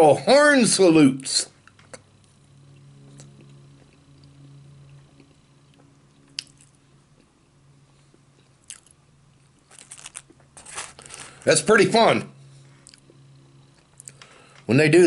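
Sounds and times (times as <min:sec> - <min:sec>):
person chewing food: 0:02.7 - 0:07.4, 0:08.1 - 0:11.4, 0:12.8 - 0:14.2.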